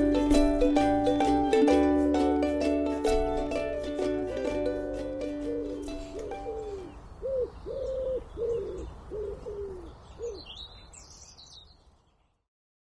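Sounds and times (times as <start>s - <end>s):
ukulele music: 0.0s - 7.0s
dove cooing: 5.5s - 10.5s
small birds chirping: 5.7s - 12.5s.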